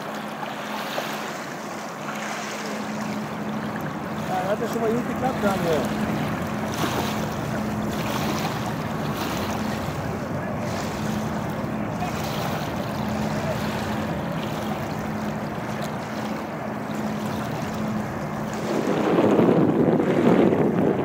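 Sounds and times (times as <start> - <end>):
boat engine droning: 0.0 - 21.0
wind rushing on microphone: 17.1 - 21.0.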